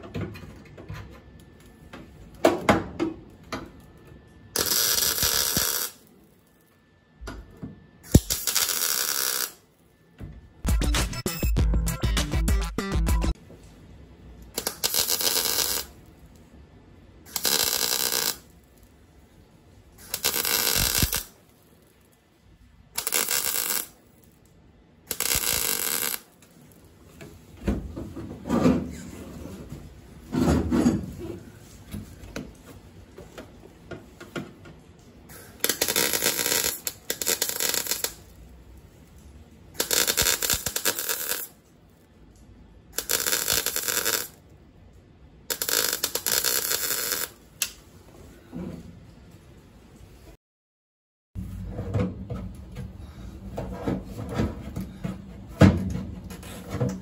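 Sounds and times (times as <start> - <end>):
welding arc buzzing: 4.6 - 6.2, 8.0 - 9.7, 14.5 - 16.2, 17.3 - 18.8, 20.0 - 21.6, 22.9 - 24.3, 25.1 - 26.5, 35.3 - 38.4, 39.7 - 41.6, 43.0 - 44.4, 45.5 - 47.8.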